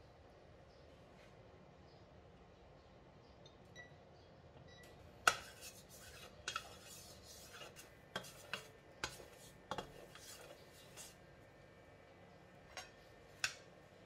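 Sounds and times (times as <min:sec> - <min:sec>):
wooden spatula scraping a wok: 0:05.2 - 0:11.2.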